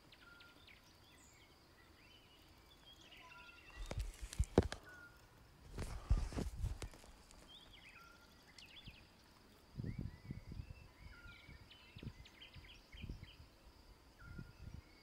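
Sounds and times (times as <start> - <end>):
small birds chirping: 0.0 - 15.0
faint steady high tone: 13.1 - 15.0.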